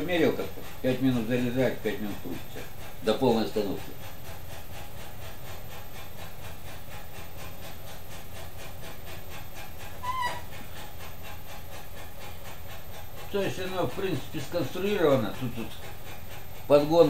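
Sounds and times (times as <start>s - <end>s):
high squeak: 10.0s - 10.6s.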